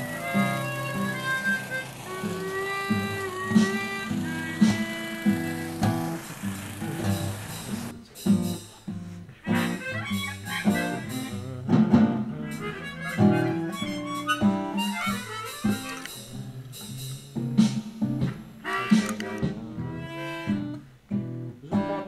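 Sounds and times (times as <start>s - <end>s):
guitar accompaniment: 0.0s - 22.0s
harmonica playing: 0.0s - 22.0s.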